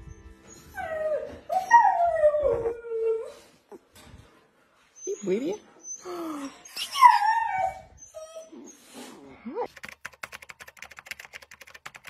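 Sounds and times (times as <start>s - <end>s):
puppy whimpering and squealing: 5.0s - 8.9s
keyboard typing clicks: 9.7s - 12.0s.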